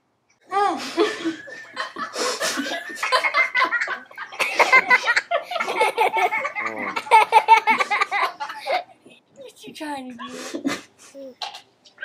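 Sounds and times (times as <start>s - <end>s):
women laughing stifled: 0.8s - 8.9s.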